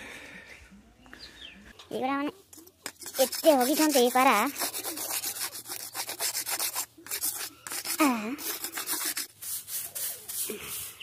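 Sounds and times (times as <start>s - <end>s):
broom sweeping cement floor: 2.8s - 11.0s.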